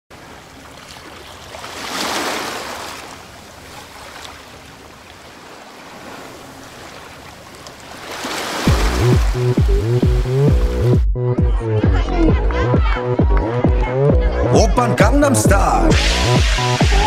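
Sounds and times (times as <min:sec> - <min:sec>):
rushing bubbling water: 0:00.1 - 0:10.8
bass-heavy dance beat: 0:08.7 - 0:17.0.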